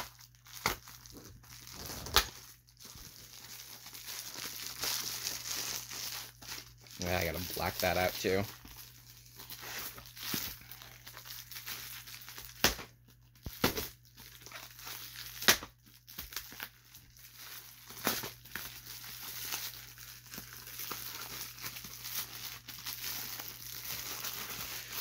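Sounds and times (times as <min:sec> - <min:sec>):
mailer ripping open: 0:00.0 - 0:02.6
mailer crinkling: 0:00.0 - 0:12.6, 0:16.0 - 0:25.0.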